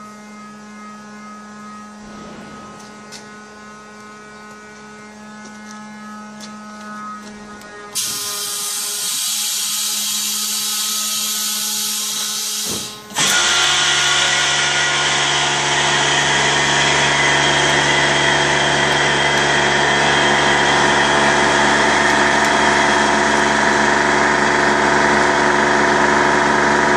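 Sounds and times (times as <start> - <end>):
loud hiss: 8.0 - 13.8
vacuum motor running: 10.1 - 26.9.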